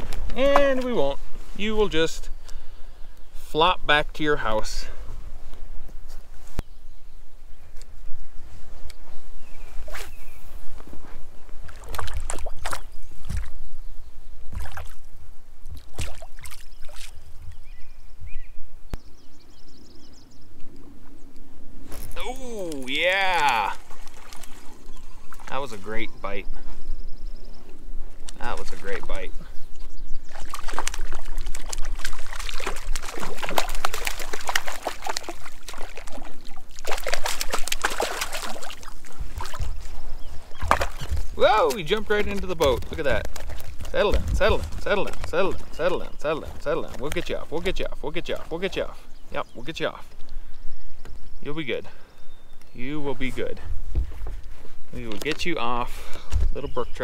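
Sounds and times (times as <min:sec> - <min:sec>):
water lapping against boat: 0:11.6 - 0:13.5, 0:14.5 - 0:15.1, 0:15.7 - 0:17.3, 0:23.4 - 0:25.9, 0:30.2 - 0:49.0
fish thrashing and splashing: 0:11.6 - 0:13.6, 0:14.5 - 0:15.0, 0:15.8 - 0:17.2, 0:22.7 - 0:25.5, 0:30.2 - 0:45.6
wind rumble on microphone: 0:38.4 - 0:48.0, 0:52.7 - 0:55.0.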